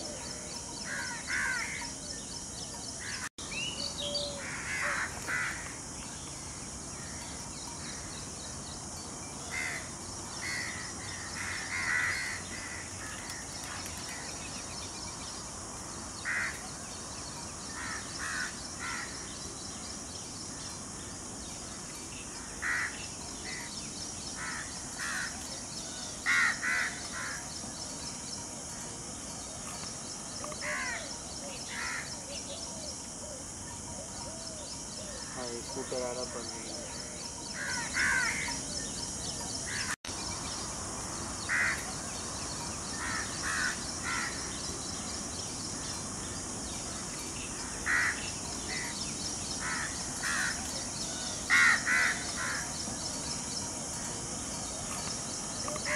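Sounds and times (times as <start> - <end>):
steady high hiss: 0.0 - 55.9
birds calling harshly: 45.9 - 53.2.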